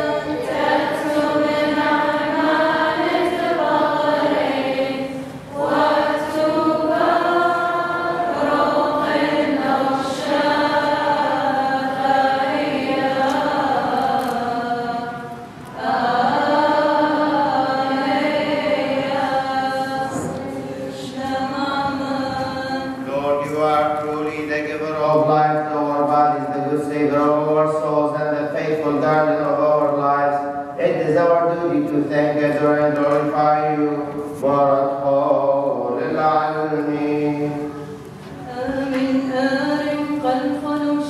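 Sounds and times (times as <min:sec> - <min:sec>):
group chanting a hymn: 0:00.0 - 0:41.0.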